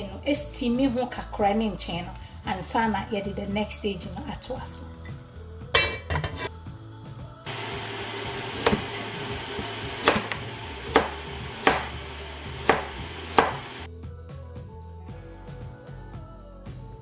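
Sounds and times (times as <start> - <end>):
steady hiss: 7.5 - 13.9
knife chopping on cutting board: 7.6 - 13.9.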